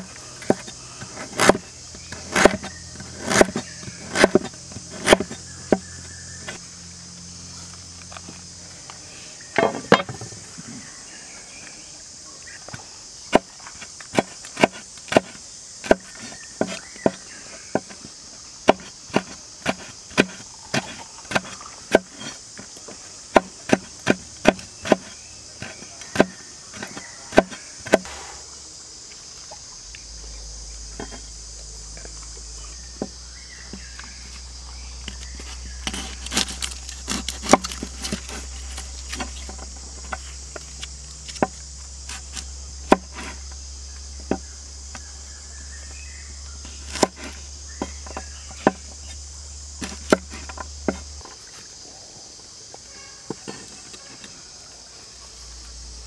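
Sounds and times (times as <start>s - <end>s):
insects chirring: 0.0s - 56.0s
knife chopping on wooden board: 0.4s - 6.6s, 14.1s - 18.0s, 18.6s - 22.4s, 23.3s - 28.1s, 35.8s - 40.2s, 41.3s - 43.4s, 46.9s - 48.9s, 49.8s - 51.2s.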